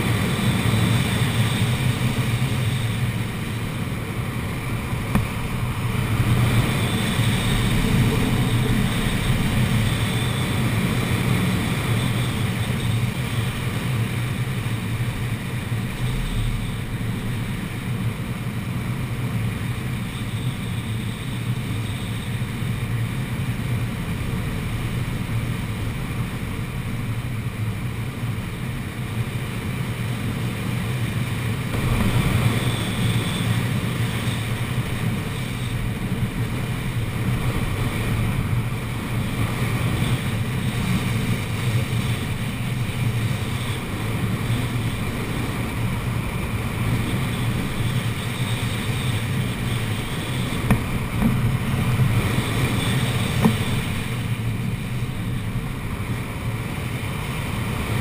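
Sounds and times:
airflow buffeting camera: 0:49.2 - 0:55.1.

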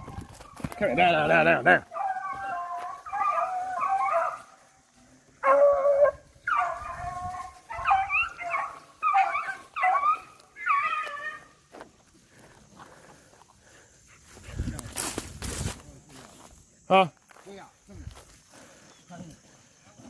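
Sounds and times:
hounds baying: 0:00.0 - 0:11.8.

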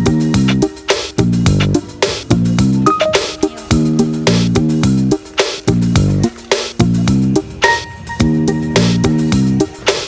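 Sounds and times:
plucked guitar chords over beat: 0:01.2 - 0:05.2.

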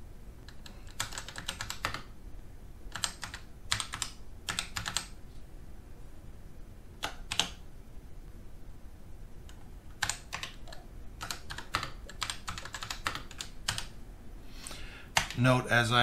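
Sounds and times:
keyboard keystrokes clattering: 0:00.5 - 0:02.1, 0:02.9 - 0:05.1, 0:07.0 - 0:07.6, 0:09.5 - 0:13.9, 0:15.1 - 0:15.4.

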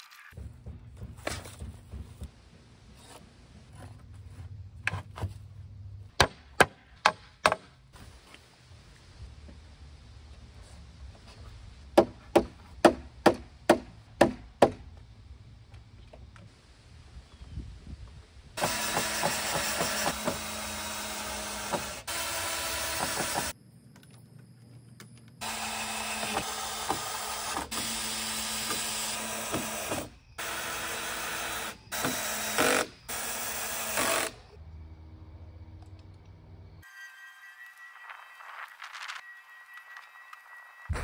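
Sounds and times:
power drill running: 0:18.6 - 0:23.5, 0:25.4 - 0:34.5.

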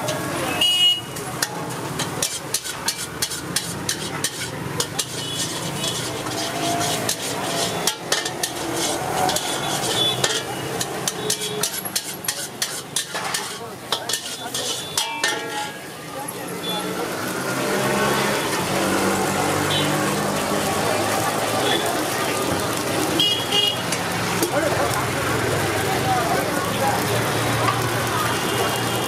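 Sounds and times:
metal utensils clanking on wok: 0:00.0 - 0:16.4, 0:23.8 - 0:25.0
frying sizzle: 0:00.0 - 0:29.0.

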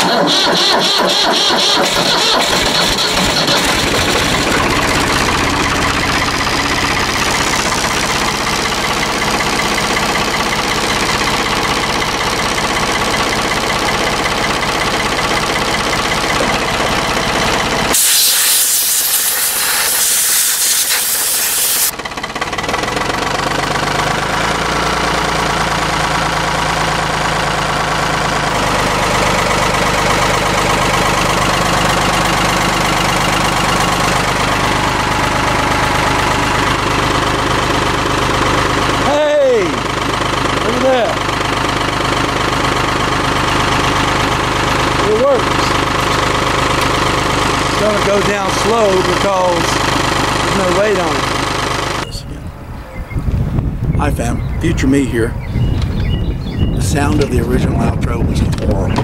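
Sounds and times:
loader engine idling: 0:00.0 - 0:52.8
loud hiss: 0:17.9 - 0:21.9.

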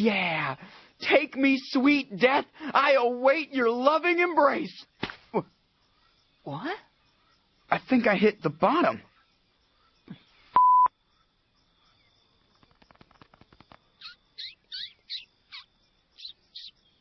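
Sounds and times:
short electronic beep: 0:10.6 - 0:10.9.

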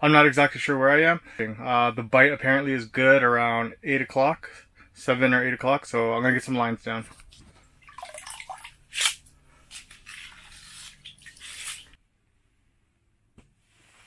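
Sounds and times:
ice scoop sloshing water: 0:07.8 - 0:08.8.

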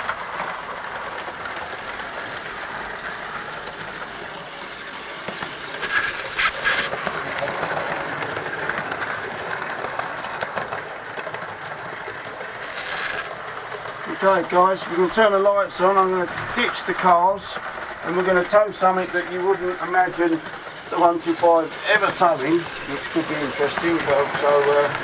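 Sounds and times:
clickety-clack over rail joints: 0:00.0 - 0:25.0
model trains rattling: 0:00.0 - 0:25.0
sharp clacks: 0:05.0 - 0:14.0.

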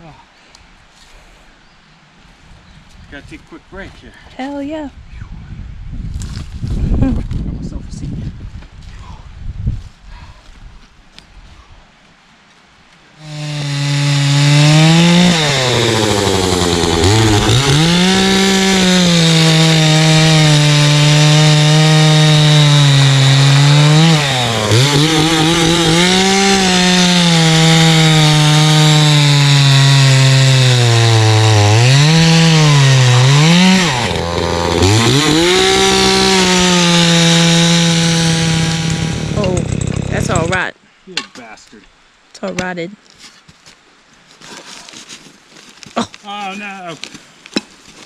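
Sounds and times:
chainsaw cutting wood: 0:13.2 - 0:40.7.

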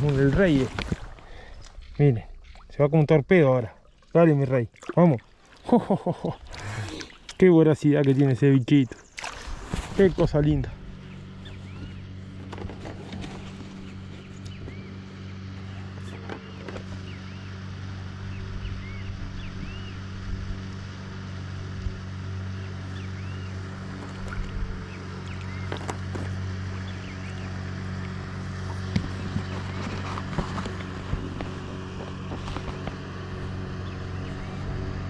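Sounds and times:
birds chirping: 0:00.0 - 0:35.0
small motor running: 0:06.3 - 0:07.2, 0:09.3 - 0:35.0.

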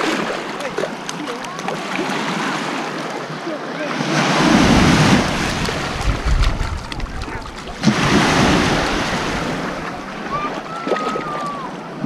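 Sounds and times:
surf washing onto beach: 0:00.0 - 0:12.0
wave breaking: 0:00.0 - 0:12.0
wind on microphone: 0:04.4 - 0:11.7.

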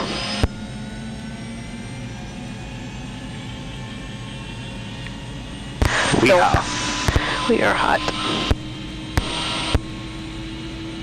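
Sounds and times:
helicopter turbine whining: 0:00.0 - 0:11.0.

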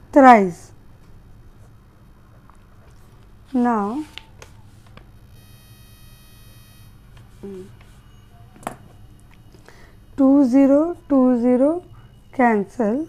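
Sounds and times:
low hum: 0:05.1 - 0:10.9
faint high whine: 0:05.1 - 0:13.0.

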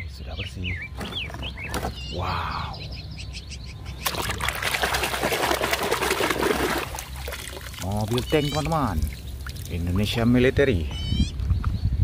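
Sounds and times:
birds chirping faintly: 0:00.0 - 0:12.0
water splashing and sloshing: 0:03.9 - 0:10.2.

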